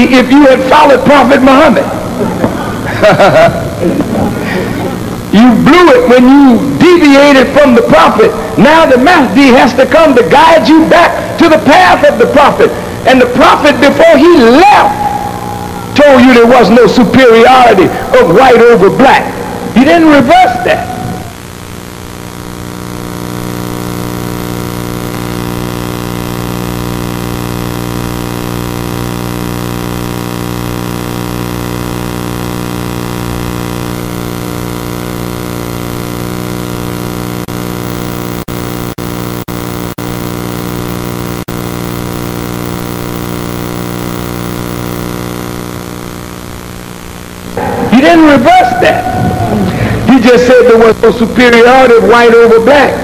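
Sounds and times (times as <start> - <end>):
electrical buzz: 21.3 - 48.0.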